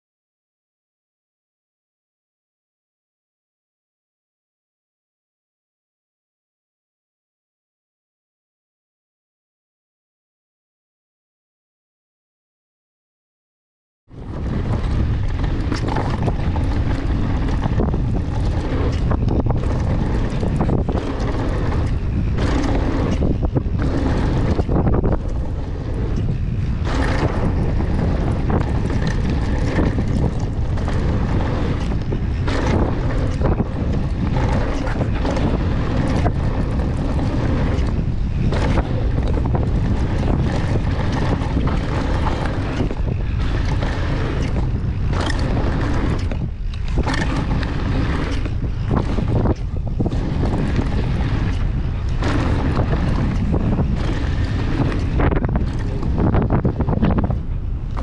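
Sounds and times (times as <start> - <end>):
tyres rumbling on dirt: 14.1 - 58.0
wind buffeting microphone: 14.1 - 58.0
bike knocks and rattles: 14.2 - 58.0.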